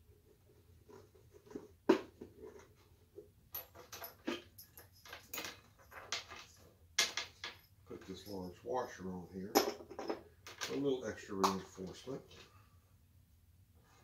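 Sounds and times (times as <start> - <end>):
small parts clicking and rattling: 3.5 - 8.3, 9.5 - 10.8.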